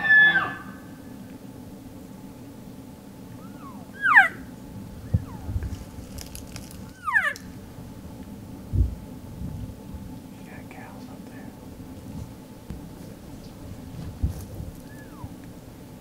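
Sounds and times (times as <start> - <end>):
elk squealing calls: 0.0 - 0.9, 3.4 - 4.5, 6.9 - 7.4, 14.8 - 15.3.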